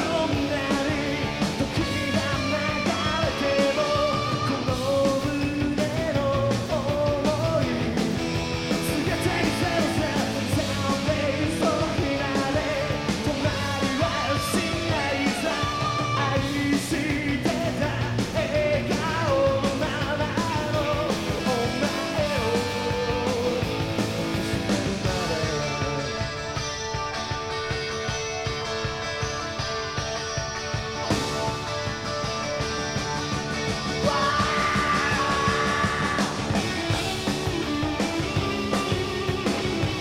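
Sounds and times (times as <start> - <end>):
person singing lead vocals: 0.0 - 26.5, 33.6 - 40.0
drums: 0.0 - 40.0
guitar: 0.0 - 40.0.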